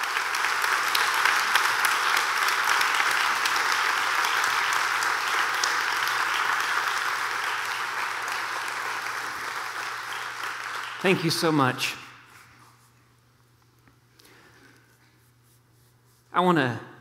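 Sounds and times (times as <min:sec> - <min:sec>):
congregation clapping: 0:00.0 - 0:12.3.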